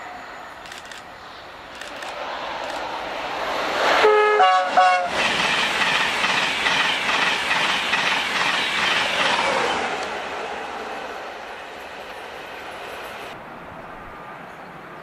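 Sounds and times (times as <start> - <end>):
train wheels rushing on rail: 0.0 - 13.4
train horn: 4.0 - 5.1.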